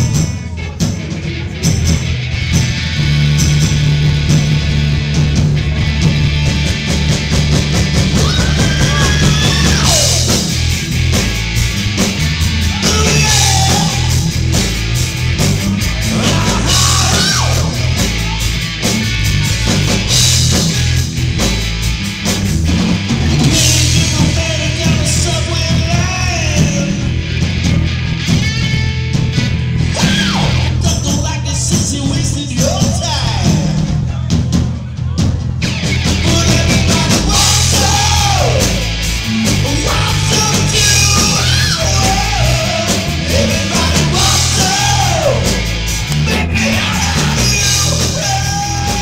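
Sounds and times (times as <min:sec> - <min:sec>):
live rock band playing: 0:00.0 - 0:49.0
person singing into microphone: 0:12.7 - 0:14.2, 0:46.3 - 0:49.0.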